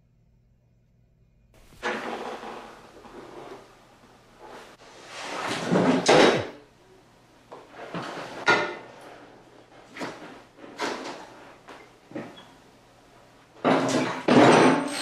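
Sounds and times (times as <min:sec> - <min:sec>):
motorcycle scraping and clunking: 0:01.6 - 0:03.8.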